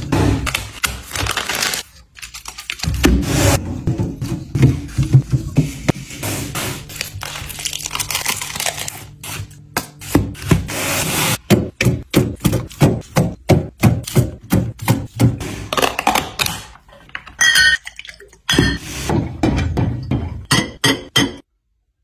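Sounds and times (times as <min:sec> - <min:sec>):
glass bottles clinking: 0:17.1 - 0:18.9, 0:19.6 - 0:21.4.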